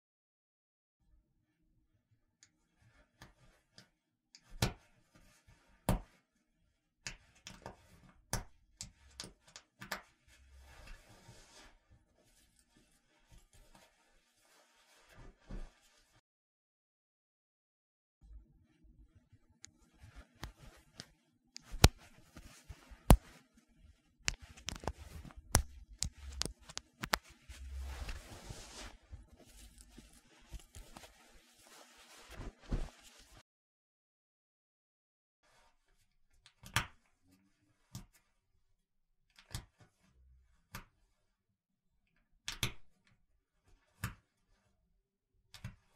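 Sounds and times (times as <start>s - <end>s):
fabric rustling: 10.3s - 16.2s, 19.8s - 33.4s.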